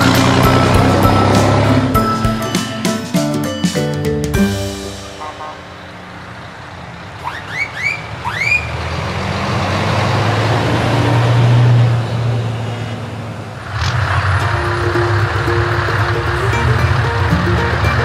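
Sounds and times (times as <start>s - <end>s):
heavy vehicle engine hum: 0.0s - 18.0s.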